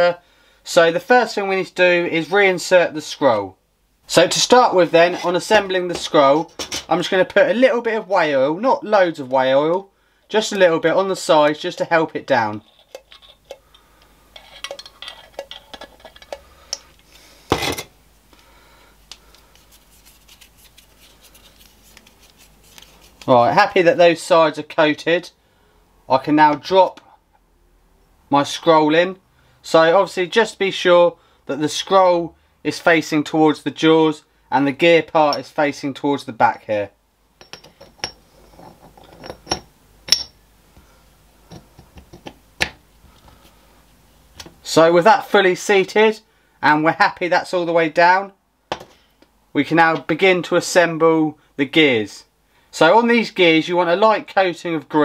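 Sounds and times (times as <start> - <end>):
steel parts clinking together: 14.4 - 16.4, 37.4 - 40.4.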